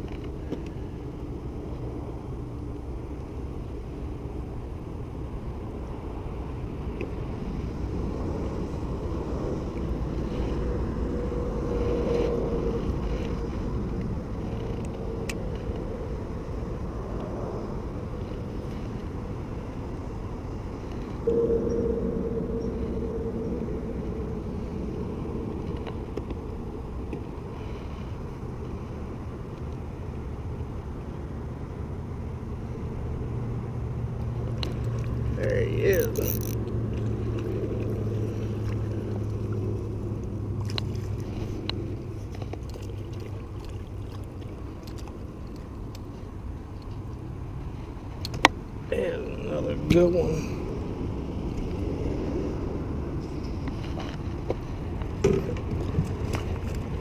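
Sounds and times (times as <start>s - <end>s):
low rumble: 0.0s - 49.5s
electric boat motor humming: 35.8s - 40.4s.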